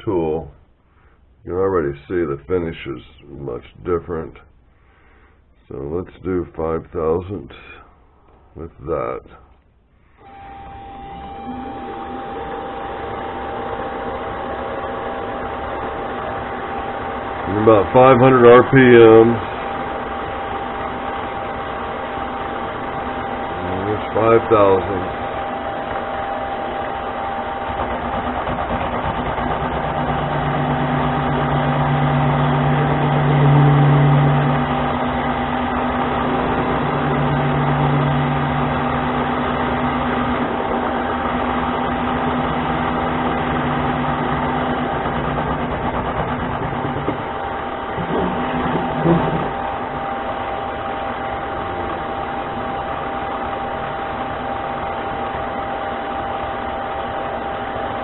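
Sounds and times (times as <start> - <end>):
low hum of cutting tool: 10.1 - 58.0
lathe motor whine: 10.2 - 58.0.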